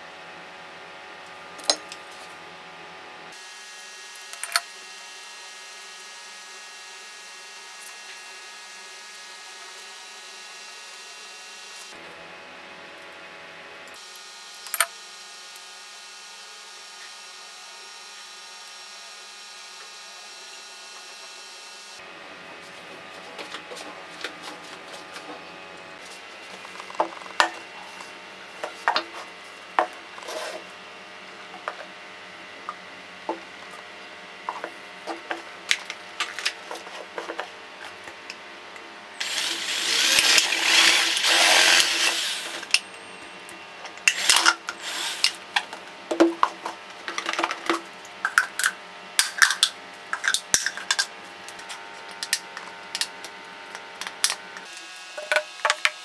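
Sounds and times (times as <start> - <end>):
power drill boring through plastic: 39.2 - 42.8, 44.0 - 45.5.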